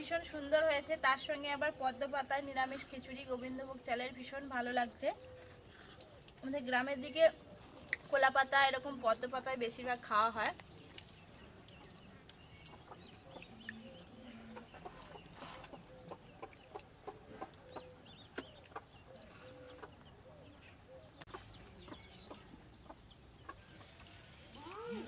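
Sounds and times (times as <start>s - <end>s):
hens clucking quietly: 11.5s - 25.0s.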